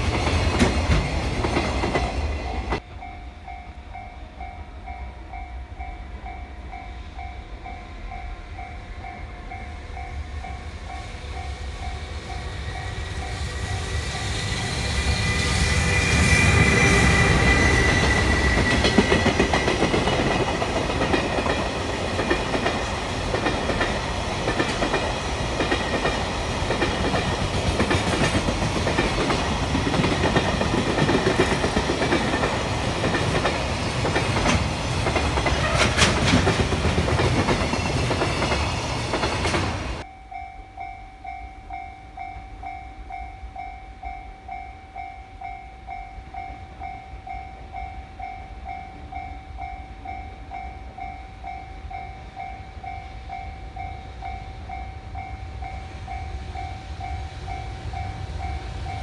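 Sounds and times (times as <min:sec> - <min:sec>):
train wheels over rail joints: 0:00.0 - 0:04.5, 0:09.0 - 0:40.1
electric locomotive whine: 0:00.0 - 0:59.0
level crossing warning bell: 0:00.6 - 0:14.9, 0:40.0 - 0:59.0.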